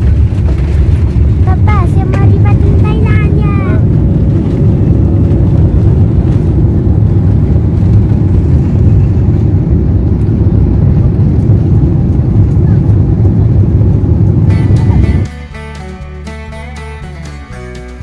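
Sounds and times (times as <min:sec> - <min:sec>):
airliner cabin rumble: 0:00.0 - 0:16.2.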